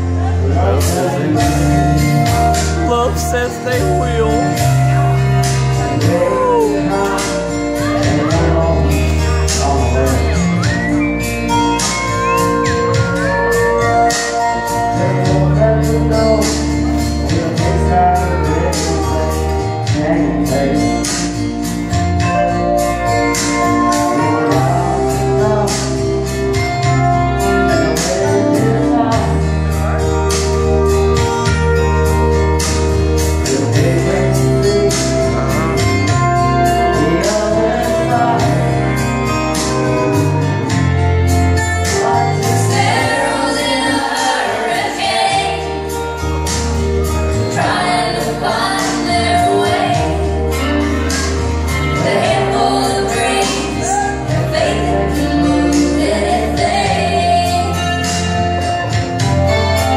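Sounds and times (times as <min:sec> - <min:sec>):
karaoke backing track: 0:00.0 - 0:59.9
woman singing country ballad: 0:42.1 - 0:46.0, 0:47.4 - 0:58.2.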